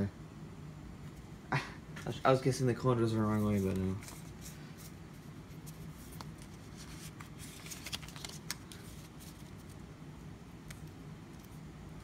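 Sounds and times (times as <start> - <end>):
trading cards being shuffled: 3.2 - 9.8.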